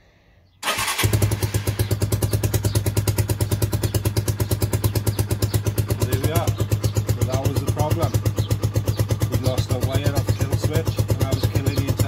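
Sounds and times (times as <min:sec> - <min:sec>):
electric starter cranking: 0:00.6 - 0:01.8
motorcycle engine idling: 0:00.6 - 0:12.0.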